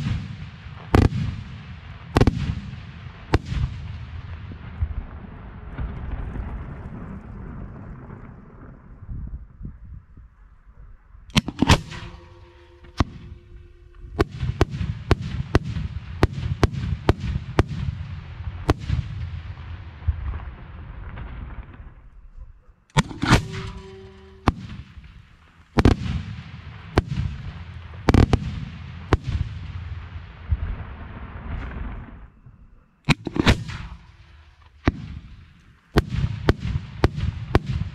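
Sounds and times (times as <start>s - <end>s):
deep rumble: 3.1s - 25.4s
firework shells bursting: 22.9s - 29.4s, 33.1s - 37.9s.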